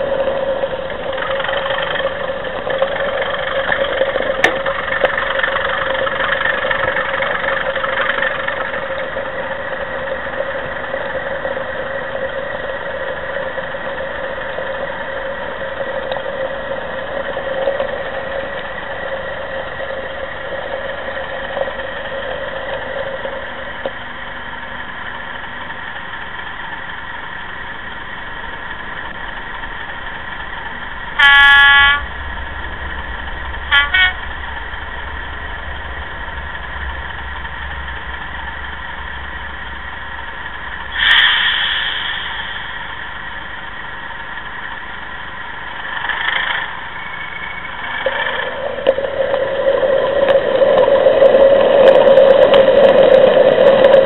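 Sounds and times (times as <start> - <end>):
model diesel engine idling: 0.0 - 50.4
train horn blast: 31.1 - 32.3, 33.6 - 34.5
short horn toots: 31.2 - 32.1, 33.7 - 34.3.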